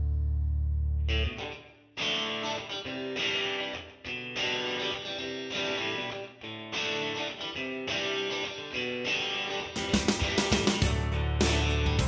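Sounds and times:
guitar plucking chords: 0:00.0 - 0:12.0.

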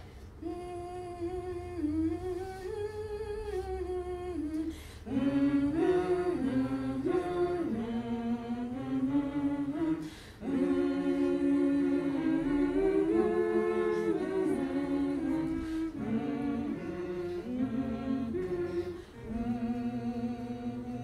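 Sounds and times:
voices singing in harmony: 0:00.3 - 0:21.0.

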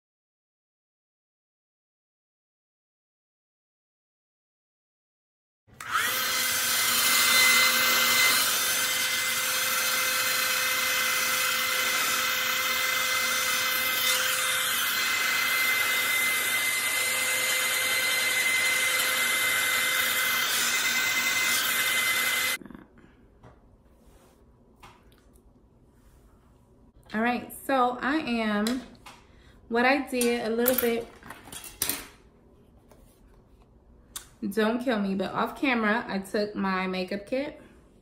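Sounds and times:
hair dryer motor whine: 0:05.8 - 0:22.6.

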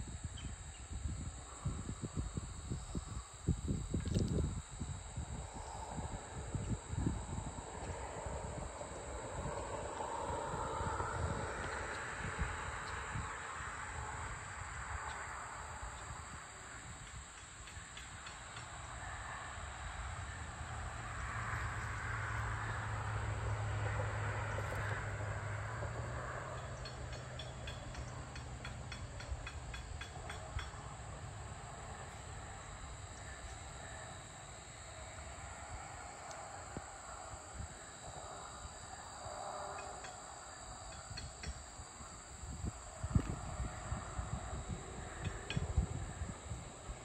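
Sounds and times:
insects buzzing: 0:00.0 - 0:47.0
distant vehicle passing: 0:20.2 - 0:28.8.

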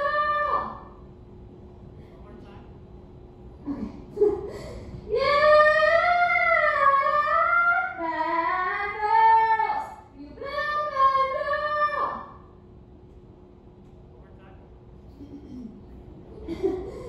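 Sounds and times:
woman singing long high notes: 0:00.0 - 0:00.9.

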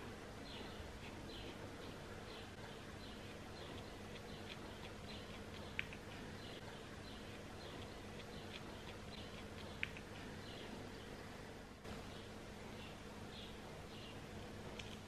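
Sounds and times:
faint room hum: 0:00.0 - 0:15.0.

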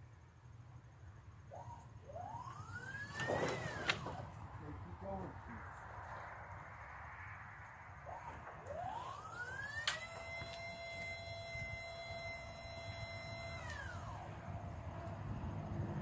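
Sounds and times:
hydraulic pump motor whining: 0:01.5 - 0:04.2, 0:08.0 - 0:15.2
motor click: 0:09.6 - 0:14.2.

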